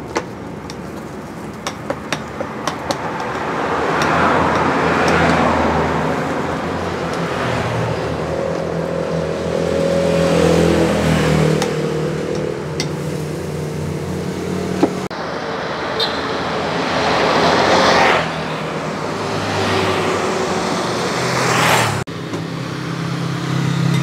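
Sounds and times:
motorbikes and cars passing: 0.0 - 24.0.

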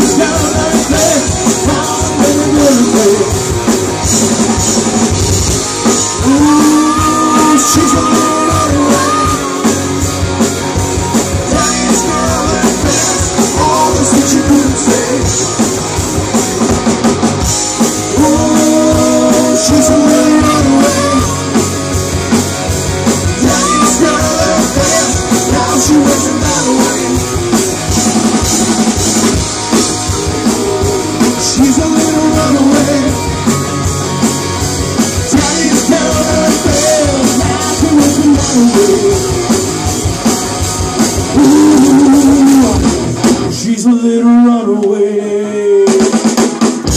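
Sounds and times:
person singing: 0.0 - 3.7, 5.8 - 10.1, 11.3 - 15.8, 18.0 - 21.9, 23.3 - 27.6, 30.1 - 33.9, 35.2 - 39.7, 41.2 - 46.5
bass guitar: 0.0 - 46.9
drum kit: 0.0 - 46.9
electric guitars: 0.0 - 46.9.

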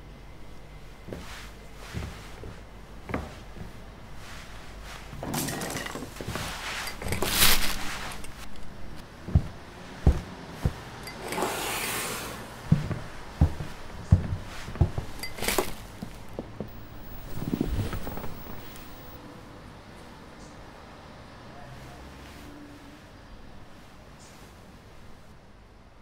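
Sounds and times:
rustling: 1.0 - 19.2.

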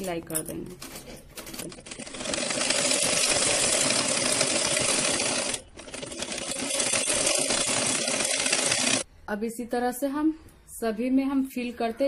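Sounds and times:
sewing machine stitching: 1.4 - 9.0.

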